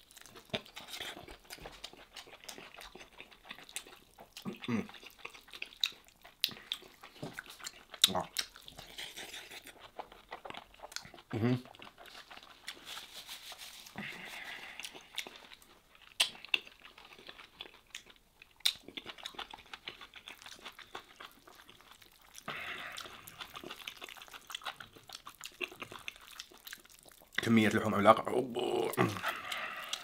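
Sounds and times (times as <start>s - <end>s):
chewing with wet mouth clicks: 0.0s - 12.8s, 14.4s - 27.5s, 28.9s - 30.0s.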